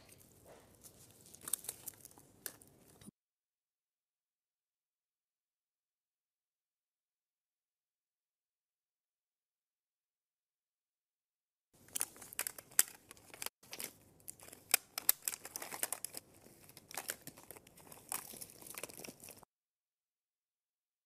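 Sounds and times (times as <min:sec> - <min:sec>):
clothes rustling and crinkling: 0:00.0 - 0:03.1.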